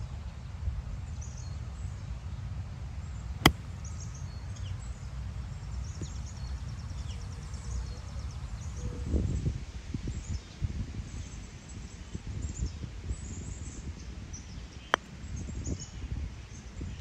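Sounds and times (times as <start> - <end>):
golf club striking ball: 3.4 - 4.3.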